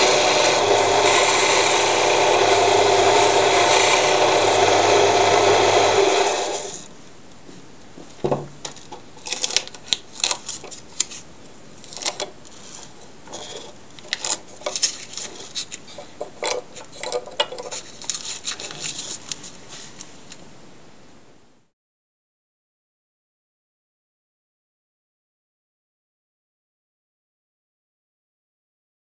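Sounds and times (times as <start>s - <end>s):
tools clinking and knocking on wood: 8.2s - 9.1s, 16.0s - 17.9s.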